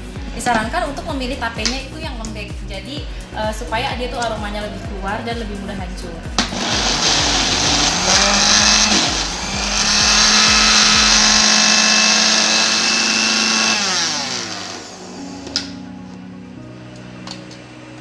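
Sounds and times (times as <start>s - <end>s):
electric blender running: 6.4s - 15.6s.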